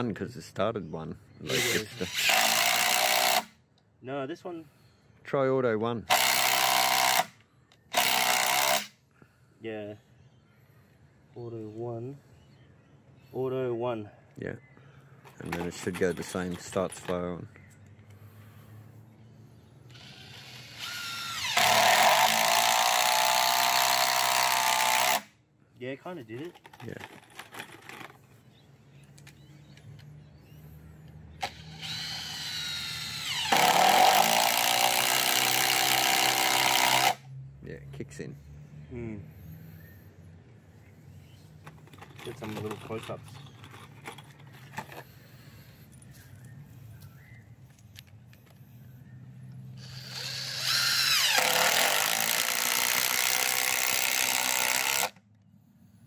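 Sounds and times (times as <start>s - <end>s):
impact driver motor whine: 19.9s - 25.2s, 31.4s - 37.2s, 49.8s - 55.2s
impact driver hammering: 33.3s - 37.2s.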